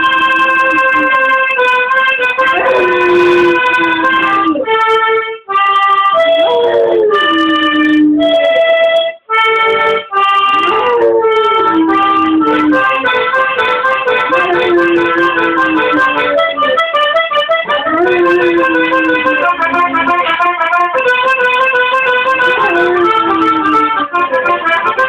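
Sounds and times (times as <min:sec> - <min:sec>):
dog howling: 0:00.0 - 0:01.4, 0:02.4 - 0:04.8, 0:06.2 - 0:08.7, 0:10.5 - 0:13.2, 0:14.2 - 0:17.0, 0:17.6 - 0:20.4, 0:22.3 - 0:24.8
reed instrument chords: 0:00.0 - 0:25.0.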